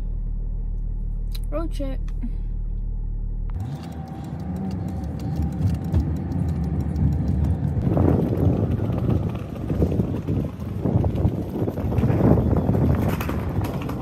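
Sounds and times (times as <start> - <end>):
engine and tyre noise: 0.0 - 14.0
low hum inside truck cabin: 0.0 - 14.0
wind on microphone: 6.9 - 14.0.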